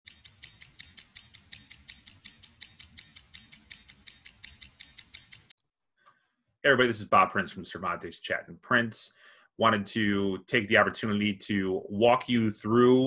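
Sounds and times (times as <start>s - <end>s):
stopwatch ticking: 0.1s - 5.6s.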